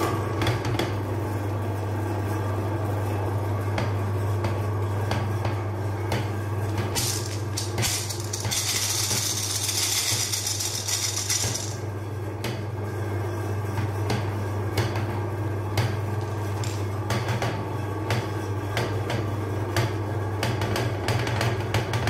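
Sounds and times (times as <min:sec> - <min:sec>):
meat grinder motor humming: 0:07.0 - 0:12.0.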